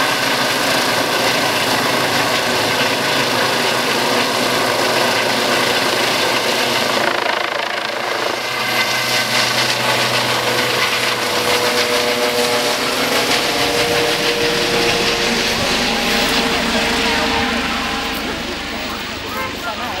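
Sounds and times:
helicopter rotor and engine noise: 0.0s - 20.0s
steady whine: 0.0s - 20.0s.

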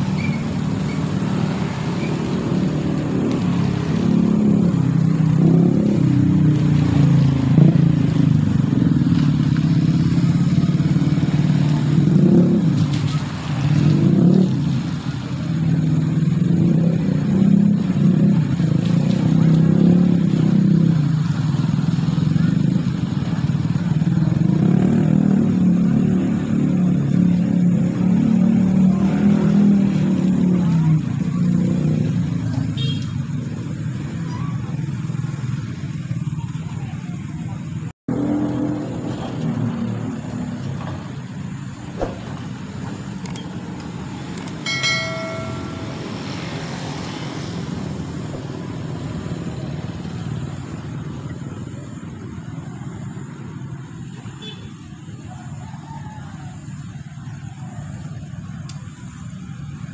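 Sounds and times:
cars and motorcycles passing: 0.0s - 59.9s
car horn toot: 32.8s - 33.2s.

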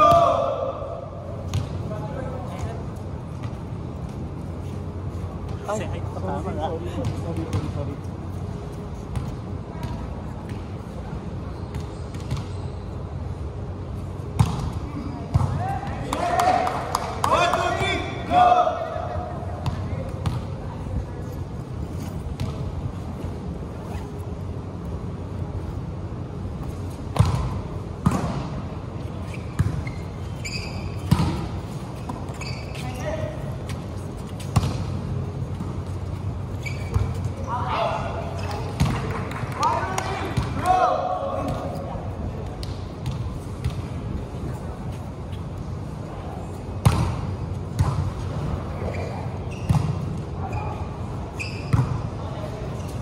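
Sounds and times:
short high squeaks: 23.8s - 24.2s, 29.2s - 31.1s, 32.3s - 33.3s, 36.5s - 37.5s, 48.8s - 49.8s, 50.4s - 51.8s
volleyball hits echoing: 31.0s - 32.3s, 37.8s - 41.7s.

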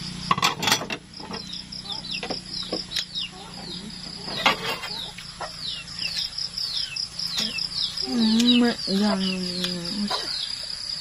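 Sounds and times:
birds chirping: 0.0s - 11.0s
insect buzz: 0.0s - 11.0s
rustles and knocks: 4.2s - 5.3s.

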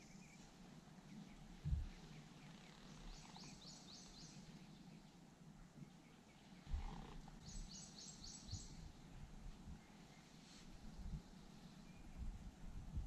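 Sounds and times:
songbird singing: 0.0s - 13.0s
dull low thump: 1.6s - 2.0s.

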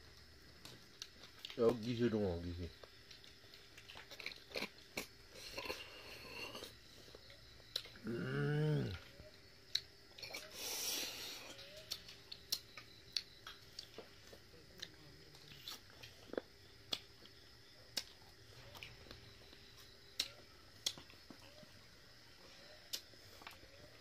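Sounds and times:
mouth clicks and smacks chewing: 11.6s - 21.5s.

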